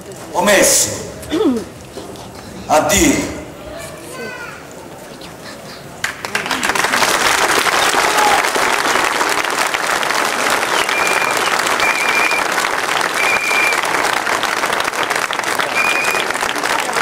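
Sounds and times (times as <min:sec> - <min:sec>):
audience applauding: 0:05.8 - 0:17.0
short high tones: 0:13.2 - 0:13.8.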